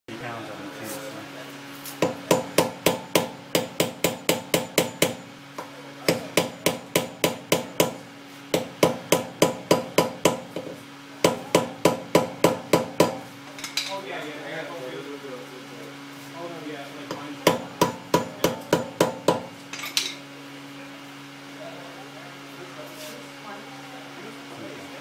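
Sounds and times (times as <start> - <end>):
hammer striking steel punch: 2.0 - 5.2, 6.1 - 13.3, 17.1 - 19.5.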